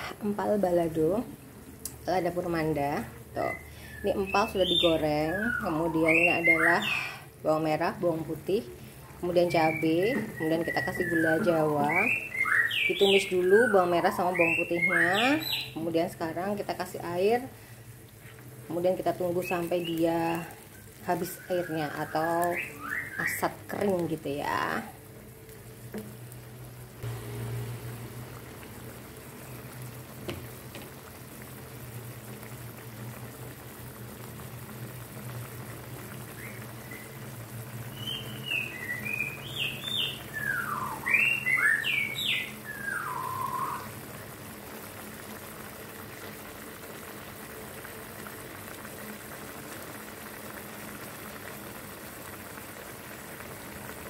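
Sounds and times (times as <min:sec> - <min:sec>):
sauce bubbling in a pan: 0:00.1 - 0:54.0
bird-like chirps and whistles: 0:03.4 - 0:07.2, 0:09.5 - 0:15.8, 0:19.4 - 0:23.5, 0:36.3 - 0:37.2, 0:37.9 - 0:44.0.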